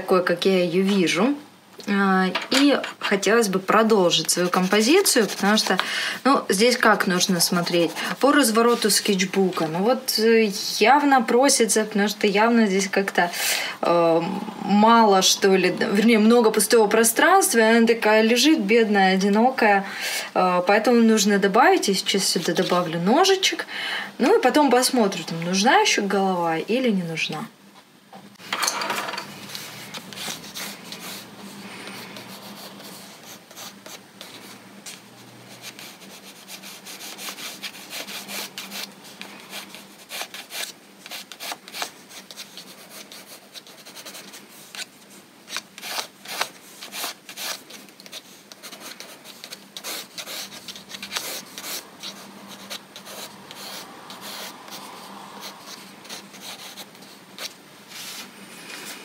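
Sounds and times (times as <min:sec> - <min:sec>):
colored pencil scratching on paper: 0:04.1 - 0:05.8, 0:06.9 - 0:09.8, 0:29.5 - 0:44.9, 0:45.5 - 0:58.9.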